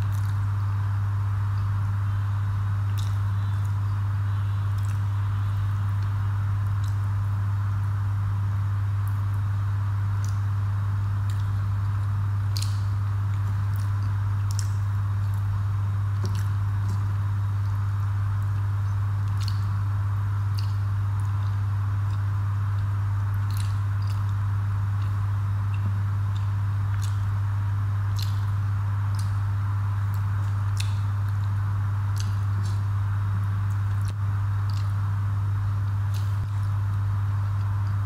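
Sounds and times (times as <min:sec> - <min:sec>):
loud steady low hum: 0:00.0 - 0:38.0
wet chewing mouth smacks: 0:02.9 - 0:03.2, 0:04.8 - 0:05.1, 0:11.2 - 0:15.5, 0:16.1 - 0:17.8, 0:18.4 - 0:19.7, 0:20.5 - 0:24.4, 0:25.0 - 0:27.4, 0:28.0 - 0:29.5, 0:30.1 - 0:33.0, 0:33.7 - 0:35.0, 0:35.9 - 0:38.0.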